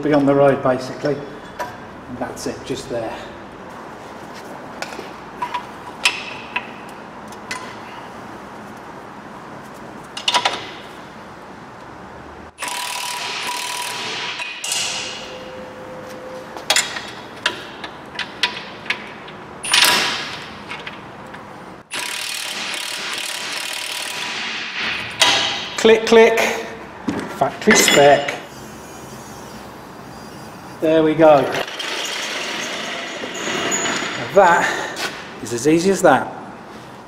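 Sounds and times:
cordless ratchet running: 12.6s - 14.1s, 21.9s - 24.4s
ratchet clicks: 12.6s - 14.5s, 21.9s - 24.4s.

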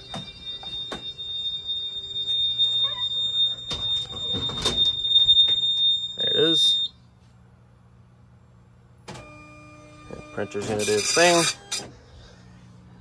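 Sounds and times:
fire alarm high-pitched tone: 0.0s - 7.0s, 9.2s - 11.8s.

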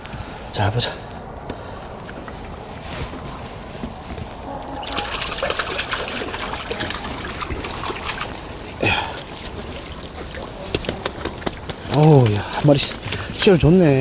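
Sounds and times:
water splash: 4.4s - 11.8s
water dribbling off net: 4.5s - 13.6s.

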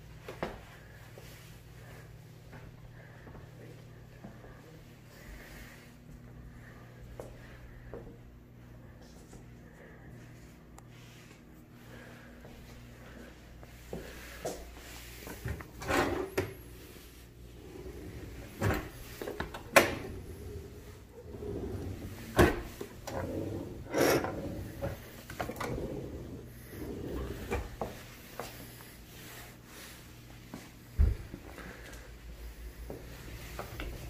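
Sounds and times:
drawers sliding on runners: 17.6s - 27.8s
cabinet door opening and closing: 18.0s - 20.6s, 21.5s - 26.1s
drawers knocking shut: 22.3s - 23.2s.

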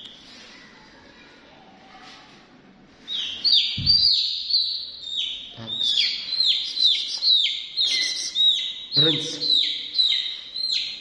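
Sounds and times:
chick peeping: 3.1s - 11.0s.

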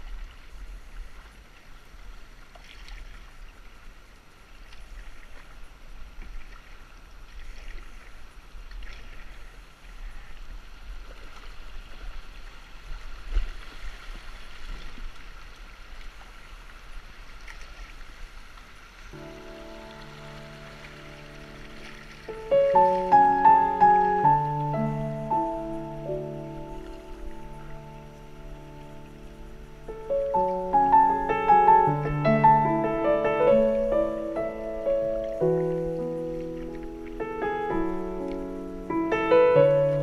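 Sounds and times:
water rushing and splashing: 0.0s - 40.0s
music: 19.2s - 40.0s.

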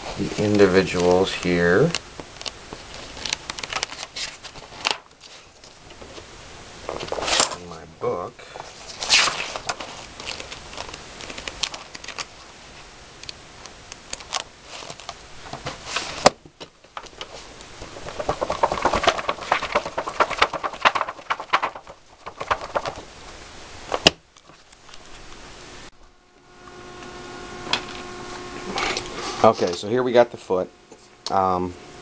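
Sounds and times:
rustling of papers and objects: 0.0s - 25.4s
steady hum: 0.0s - 32.0s.

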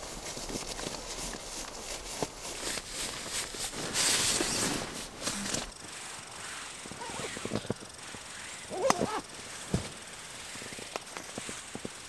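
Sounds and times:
camping gear handled: 0.0s - 6.2s, 6.8s - 10.0s.

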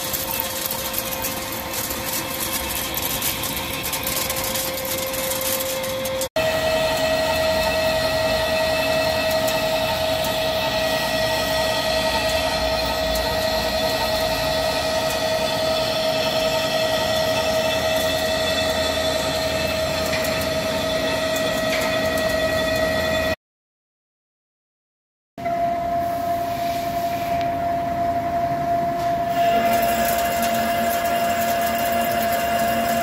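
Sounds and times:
lathe high whine: 0.0s - 23.4s, 25.5s - 33.0s
machine running noise: 0.0s - 23.4s, 25.4s - 33.0s.

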